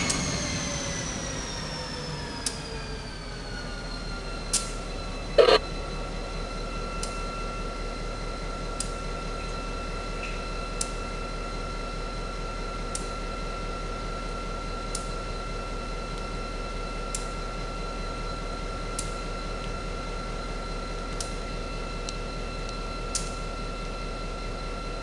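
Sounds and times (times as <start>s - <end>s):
diesel locomotive engine drone: 0.0s - 25.0s
steady whine: 3.2s - 25.0s
short sharp clicks: 5.4s - 5.6s.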